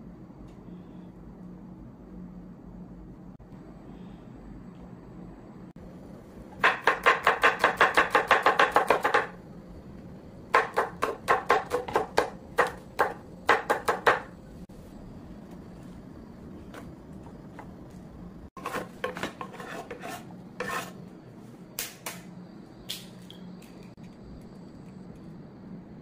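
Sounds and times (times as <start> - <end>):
knife chopping on cutting board: 6.6 - 9.3, 10.5 - 14.3, 18.6 - 20.9.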